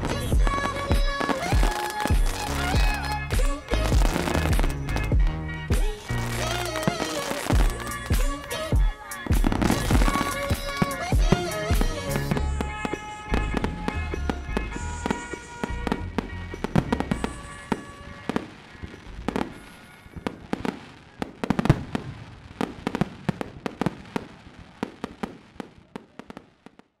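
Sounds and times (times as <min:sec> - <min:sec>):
song playing: 0:00.0 - 0:21.9
fireworks bangs and crackles: 0:00.0 - 0:27.0.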